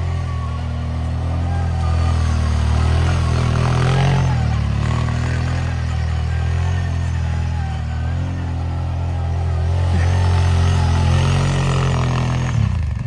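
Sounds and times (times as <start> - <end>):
atv engine under throttle: 0.0 - 13.0.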